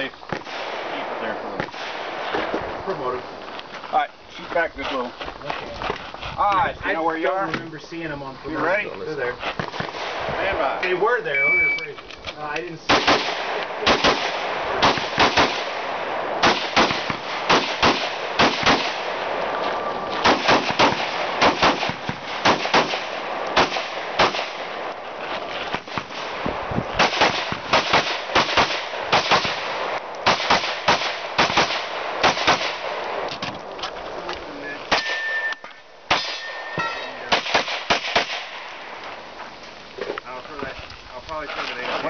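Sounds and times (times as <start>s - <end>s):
rifle shots: 0.0s - 2.5s, 9.7s - 11.2s, 12.8s - 19.6s, 20.2s - 33.6s, 34.9s - 39.0s
handgun shots: 34.9s - 38.6s.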